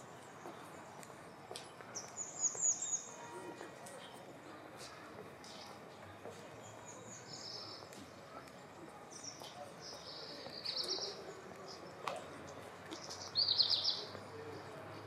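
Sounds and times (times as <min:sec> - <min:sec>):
faint street ambience: 0:00.0 - 0:15.0
small birds chirping: 0:09.1 - 0:11.9, 0:12.9 - 0:14.2.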